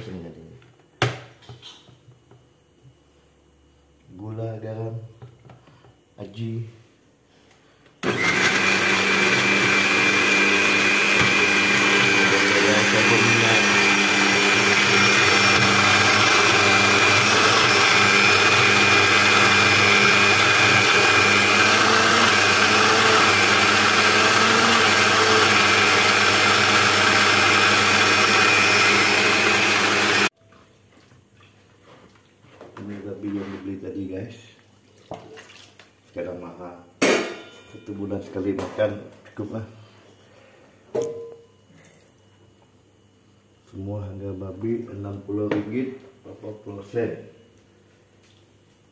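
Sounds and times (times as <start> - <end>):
electric blender running: 8.0 - 30.3.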